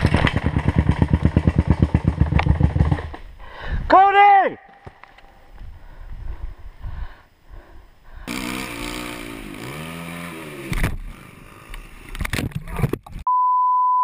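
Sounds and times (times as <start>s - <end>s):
motocross bike engine revving: 0.0s - 3.2s, 8.3s - 12.4s
bike crashing clattering and scraping: 0.0s - 3.3s
low rumble and thumps: 0.0s - 3.9s.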